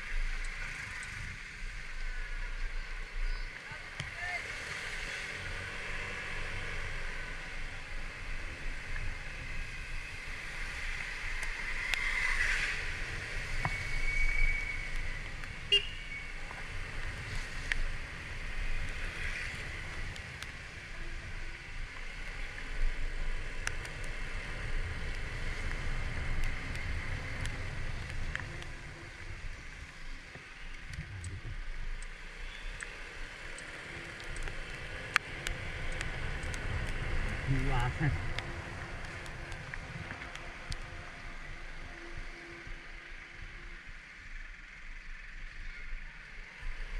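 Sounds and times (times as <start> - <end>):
hiss from wet road: 0.0 - 30.8
traffic: 0.0 - 46.9.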